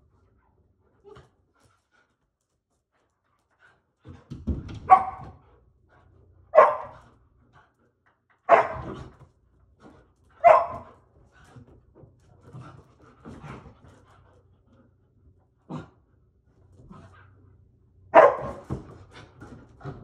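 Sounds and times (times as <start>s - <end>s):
dog barking: 4.9s - 5.4s, 6.5s - 7.0s, 8.5s - 9.0s, 10.4s - 10.9s, 18.1s - 18.7s.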